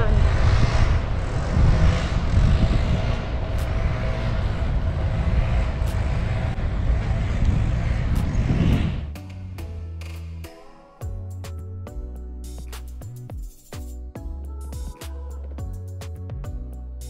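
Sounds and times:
road traffic rumble: 0.0 - 9.6
background music: 5.8 - 17.0.

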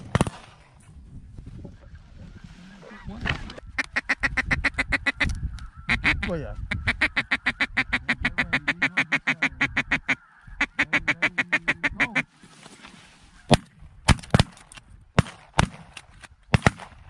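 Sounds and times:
shotgun blasts: 0.0 - 0.6, 15.2 - 17.0
duck call feeding chuckle: 10.7 - 12.2.

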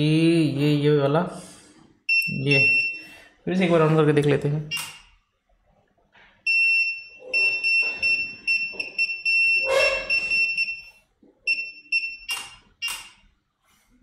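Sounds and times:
multimeter buzzer beeping: 6.5 - 13.2
probe scratching: 7.2 - 10.8.

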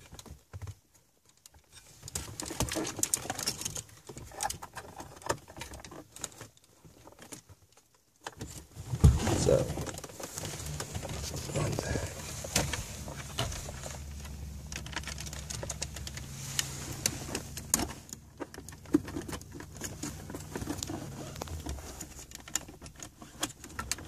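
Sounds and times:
low steady hum: 8.8 - 23.0
small plastic clicks and rattles: 22.3 - 24.0.

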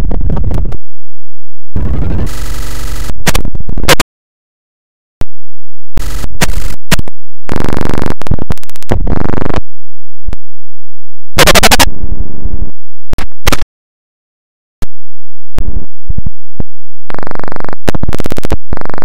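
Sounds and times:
distorted noise blasts: 1.8 - 4.0, 6.0 - 9.6, 11.4 - 13.6, 17.1 - 19.0.

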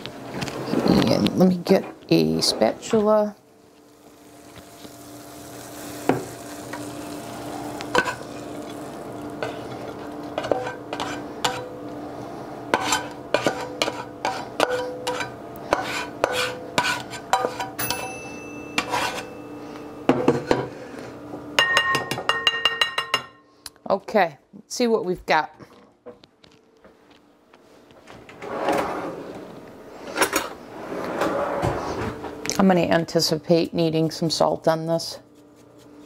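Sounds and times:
steady low hum: 0.0 - 36.0
spatula scraping skillet: 5.6 - 11.7, 12.7 - 17.8, 18.8 - 19.4.

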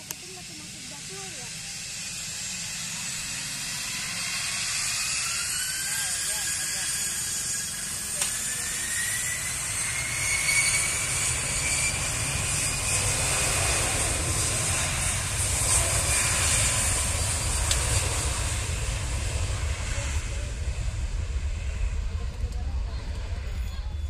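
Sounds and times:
jet engine whine rising: 0.0 - 24.0
jet engines rumbling and hissing: 0.0 - 24.0.

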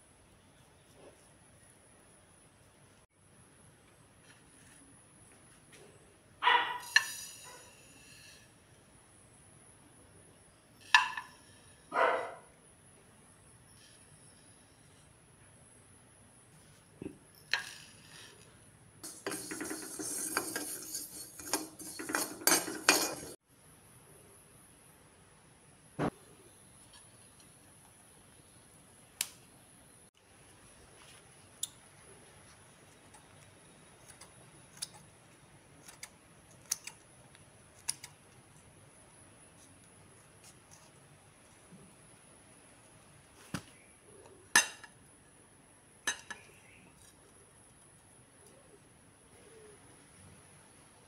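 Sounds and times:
seeds rattling in pan: 6.8 - 8.4, 17.4 - 23.4
spatula scraping iron pan: 17.5 - 23.4
metal clanks: 19.0 - 23.4
scissors snipping chillies: 35.8 - 37.0.

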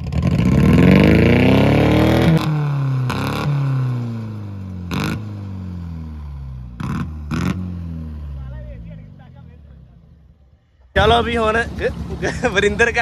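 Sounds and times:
car engine revving: 0.0 - 10.3.

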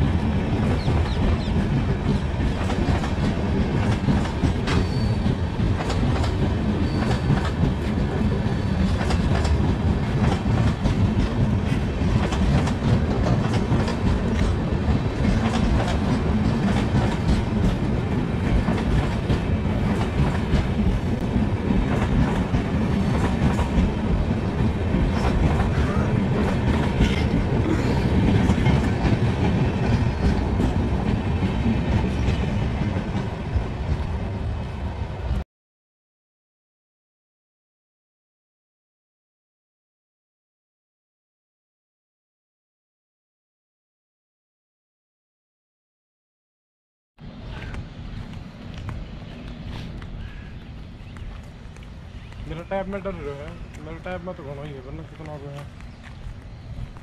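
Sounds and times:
train coaches rumbling past: 0.0 - 35.4, 47.2 - 57.0.

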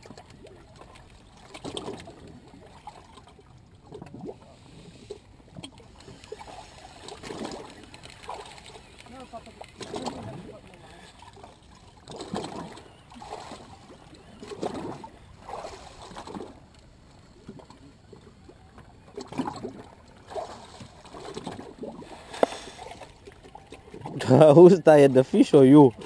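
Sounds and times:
water lapping against boat: 0.0 - 26.0.

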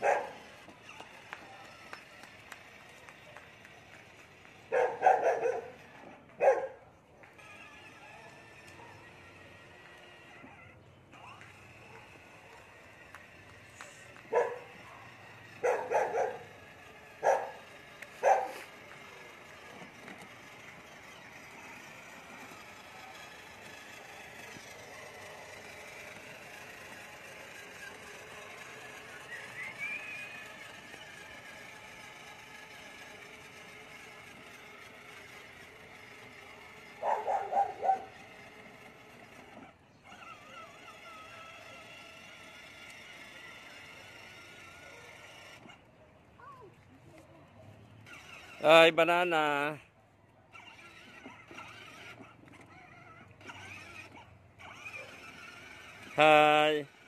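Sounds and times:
dog barking: 0.0 - 0.4, 4.7 - 5.8, 6.4 - 6.8, 14.3 - 16.5, 17.2 - 17.6, 18.2 - 18.6, 37.0 - 38.1
puppy yapping: 4.7 - 5.8, 6.4 - 6.8, 14.3 - 16.5, 18.2 - 18.6, 37.0 - 38.1.

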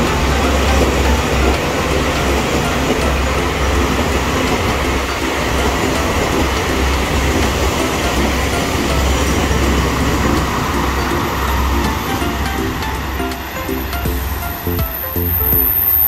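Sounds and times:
diesel train passing: 0.0 - 16.0.

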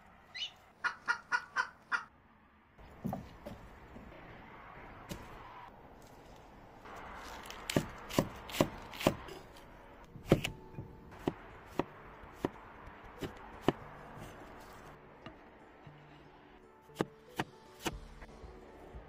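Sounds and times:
cleaver chopping on wooden board: 7.7 - 9.3, 10.2 - 10.6.

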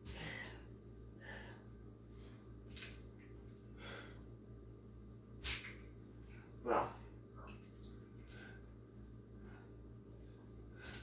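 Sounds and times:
person breathing hard: 0.0 - 2.5, 3.6 - 4.4
faint low hum: 0.0 - 11.0.

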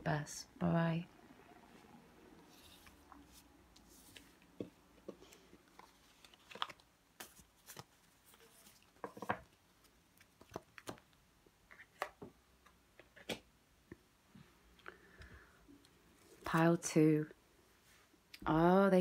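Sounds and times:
cards tapping and rustling: 4.1 - 9.5, 10.2 - 11.1.

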